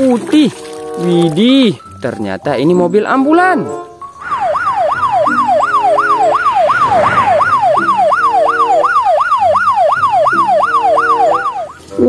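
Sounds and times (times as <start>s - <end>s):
ambulance siren yelping: 3.4s - 12.0s.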